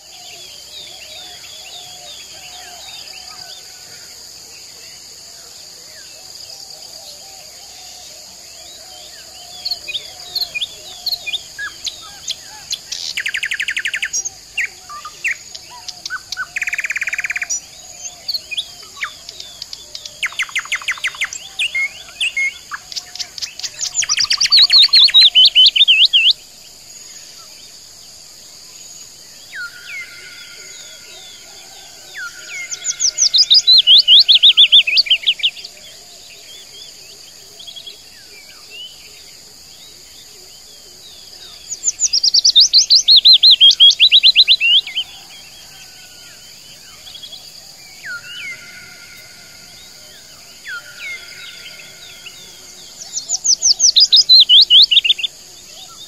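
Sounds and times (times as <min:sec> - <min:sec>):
high insect drone: 0:00.0 - 0:56.0
songbirds chirping and trilling: 0:00.0 - 0:56.0.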